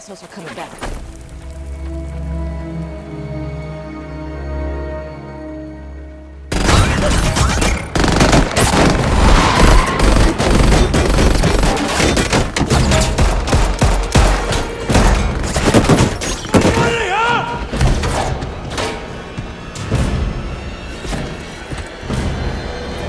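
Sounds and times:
film score music: 0.0 - 23.0
rapid gunfire: 6.5 - 14.5.

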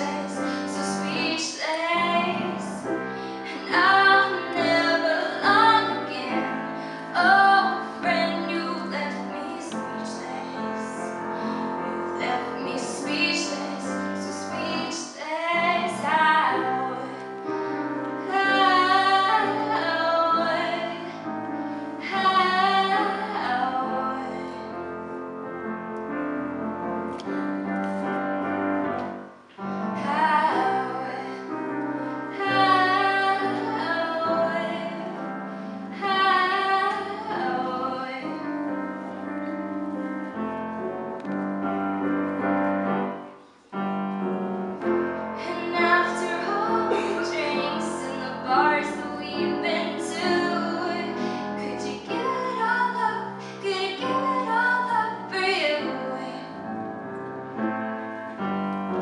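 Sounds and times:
girl singing into a microphone: 0.0 - 24.7, 29.9 - 39.4, 45.4 - 56.5
grand piano accompaniment: 0.0 - 59.0.

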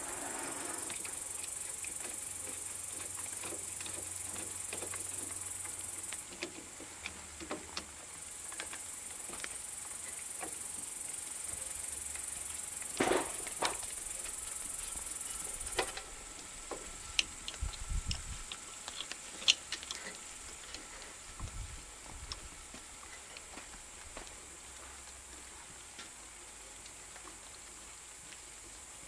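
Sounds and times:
high insect drone: 0.0 - 6.4, 8.2 - 24.7.

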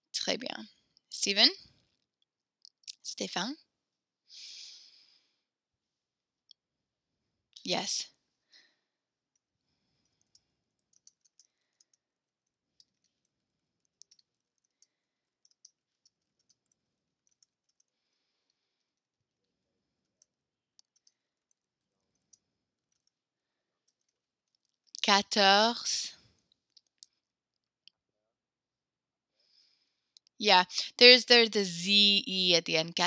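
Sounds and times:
keyboard typing clicks: 10.2 - 12.0, 13.8 - 14.8, 15.4 - 17.9, 20.2 - 21.2.

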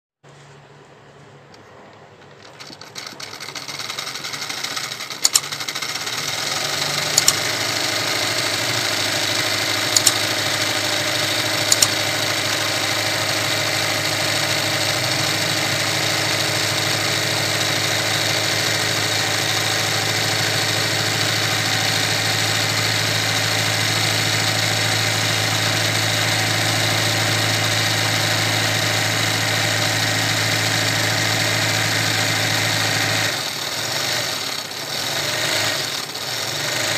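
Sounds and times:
sharp clicks: 1.5 - 12.7
sewing machine motor humming: 2.2 - 36.9.

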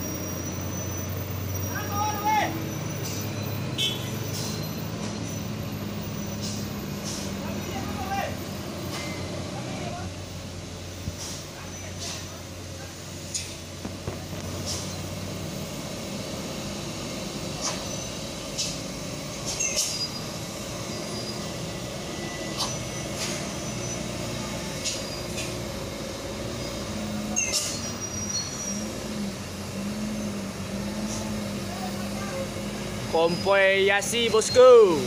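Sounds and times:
air brakes hissing: 0.0 - 7.8, 11.0 - 12.4, 13.2 - 13.7, 14.5 - 15.3, 16.2 - 30.4
diesel truck engines humming: 0.0 - 35.0.

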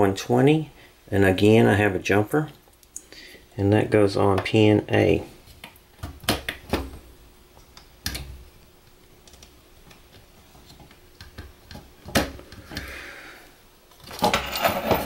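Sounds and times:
wires rattling in metal box: 14.0 - 15.0.

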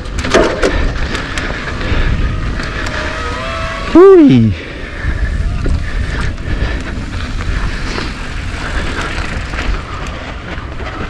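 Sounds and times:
bike knocking and rattling: 0.0 - 3.8, 4.8 - 11.0
tyre and wind rush: 0.0 - 11.0.

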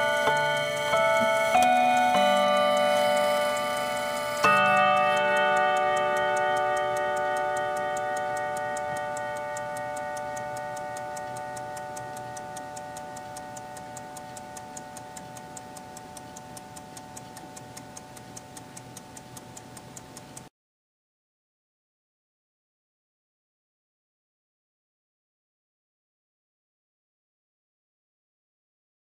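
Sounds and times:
clock chime rod ringing: 0.0 - 19.2
clock ticking rapidly: 0.0 - 20.5.

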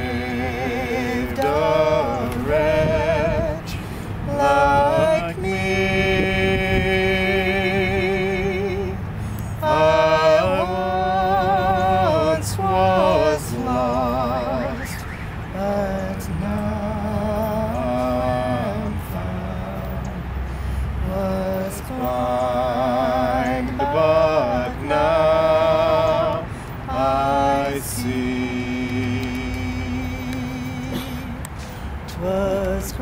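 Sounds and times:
woman singing with vibrato: 0.0 - 9.0, 9.6 - 15.0, 21.2 - 31.4
man singing along: 0.0 - 20.4, 21.0 - 33.0
singer breaths: 3.7 - 4.2, 9.1 - 9.6, 20.4 - 21.0, 26.5 - 26.9, 31.5 - 32.1.

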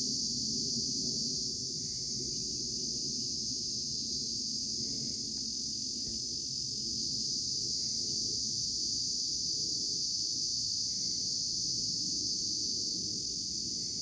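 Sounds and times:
high-pitched insect chorus: 0.0 - 14.0.

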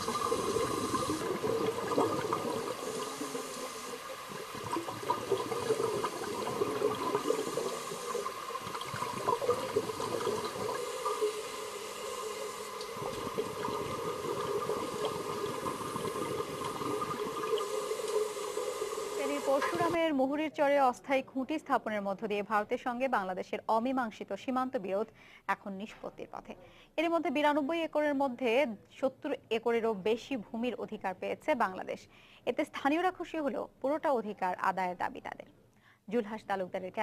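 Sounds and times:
aquarium water bubbling: 0.0 - 20.0.

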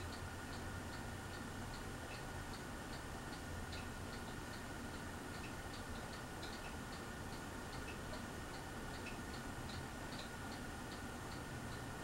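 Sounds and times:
quick light ticking: 0.0 - 11.9
ceiling fan motor hum: 0.0 - 12.0.

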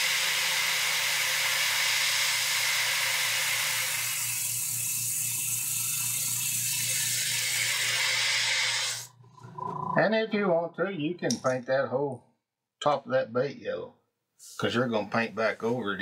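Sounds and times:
airbrush spraying hiss: 0.0 - 9.1.

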